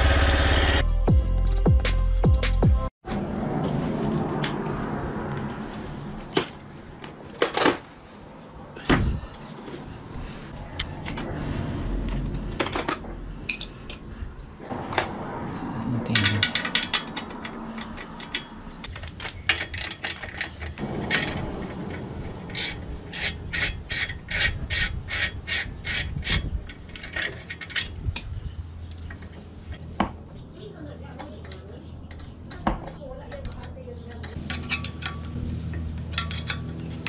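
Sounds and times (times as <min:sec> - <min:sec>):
metal pipe parts rubbing and scraping: 0:16.1 - 0:28.2, 0:34.2 - 0:37.0
rasping strokes: 0:22.3 - 0:26.6.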